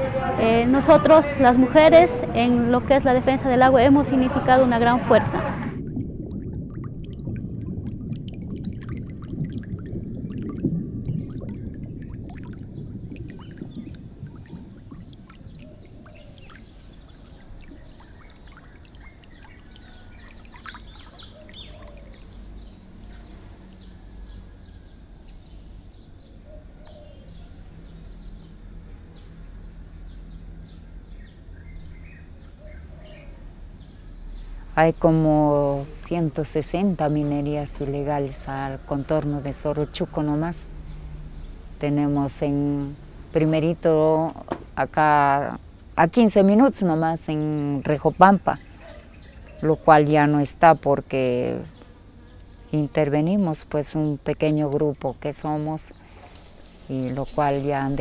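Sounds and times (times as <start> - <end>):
faint low steady hum: 0.0 - 58.0
rushing pouring water: 3.7 - 24.5
bird calls: 12.5 - 28.5, 30.1 - 34.8, 47.5 - 49.9.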